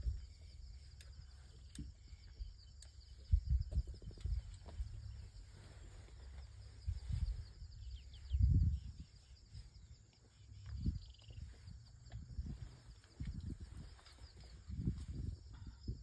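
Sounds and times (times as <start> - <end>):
bird chirps: 0.0 - 12.9
insects chirring: 0.0 - 16.0
wind buffeting microphone: 3.1 - 16.0.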